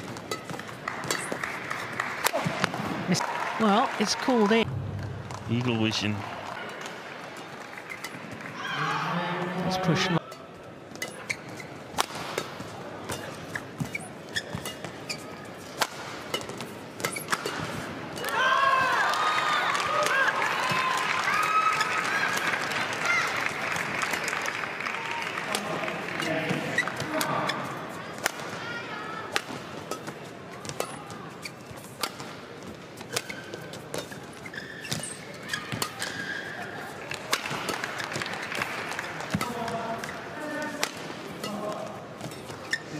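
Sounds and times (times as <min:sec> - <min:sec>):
court shoes squeaking: 0:00.0 - 0:03.0, 0:06.7 - 0:08.4, 0:10.1 - 0:18.3, 0:26.2 - 0:28.3, 0:29.3 - 0:42.9
rackets hitting shuttlecock: 0:12.0 - 0:15.1, 0:15.7 - 0:18.4, 0:34.9 - 0:36.3, 0:37.1 - 0:38.5, 0:39.2 - 0:42.6.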